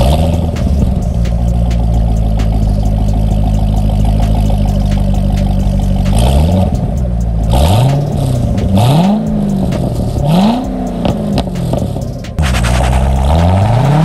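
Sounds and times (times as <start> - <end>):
car engine idling and revving: 0.0 - 14.0.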